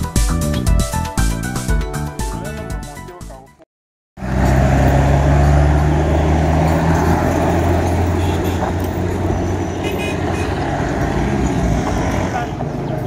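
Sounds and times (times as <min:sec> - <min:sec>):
road noise: 0:04.2 - 0:13.0
vehicle engines humming: 0:04.2 - 0:13.0.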